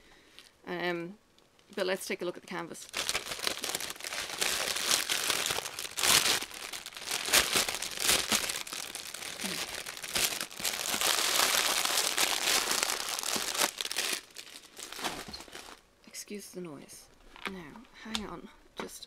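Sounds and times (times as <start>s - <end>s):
plastic bag crinkling: 2.6s - 15.8s.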